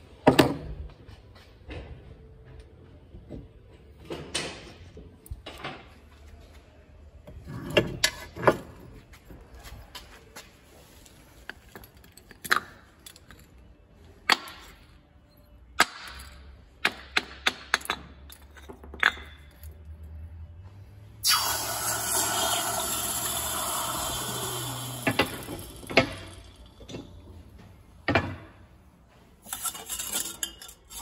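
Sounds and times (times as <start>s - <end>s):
metal clanks on concrete floor: 16.9s - 19.7s.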